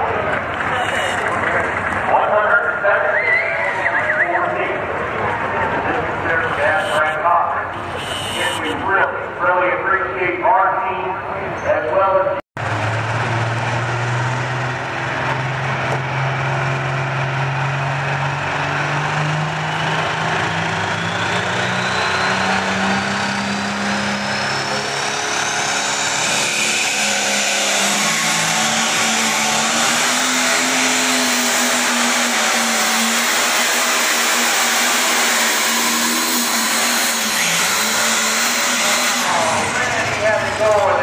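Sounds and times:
turbo whine: 0.7 - 1.3, 6.3 - 7.2, 7.9 - 8.8
diesel engine revving under load: 12.6 - 41.0.

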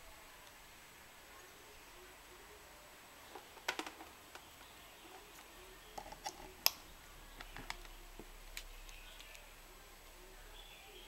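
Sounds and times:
plastic clicks and taps: 3.3 - 6.8, 7.4 - 9.4.

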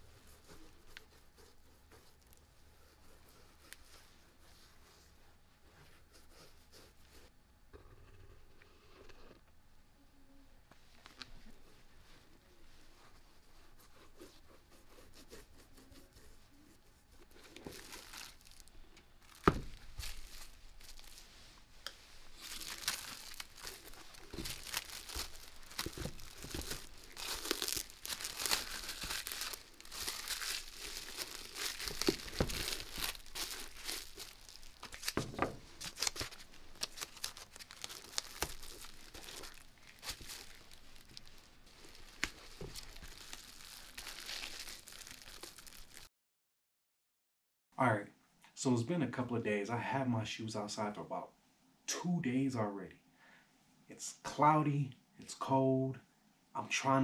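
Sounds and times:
plastic wrap crinkling and tearing: 17.2 - 21.4, 22.2 - 46.1.

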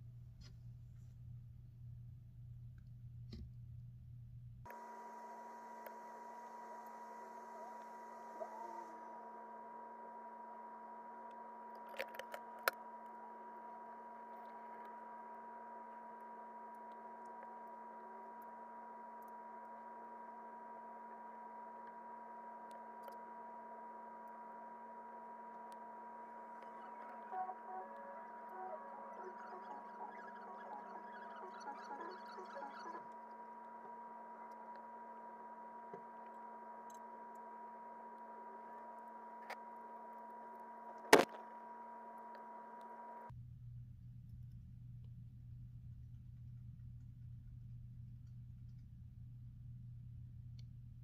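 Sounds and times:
high whine: 25.1 - 39.0.

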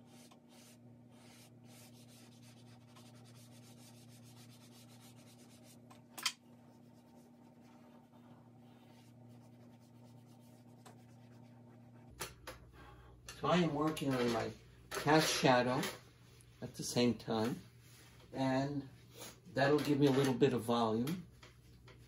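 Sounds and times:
drawing stick scratching on paper: 0.0 - 5.8
faint low hum: 0.0 - 22.0.

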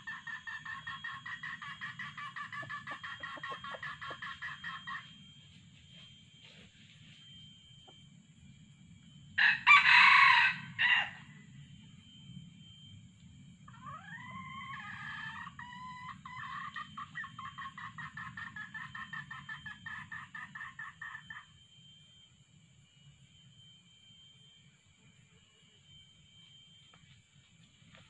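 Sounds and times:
hen clucks: 0.0 - 5.1, 13.7 - 21.5
rooster crowing: 9.4 - 11.3, 13.7 - 21.4.

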